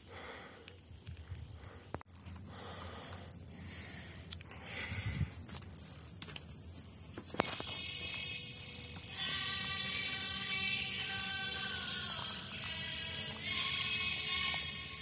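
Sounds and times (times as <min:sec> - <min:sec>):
insects chirring: 0:01.1 - 0:15.0
footsteps on stones: 0:05.4 - 0:06.5.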